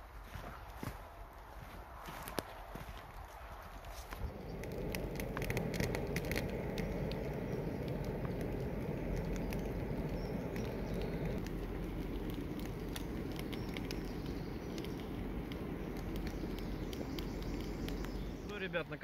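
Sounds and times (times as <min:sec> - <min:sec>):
campfire crackling and snapping: 0:00.0 - 0:19.0
steady rushing noise: 0:04.0 - 0:19.0.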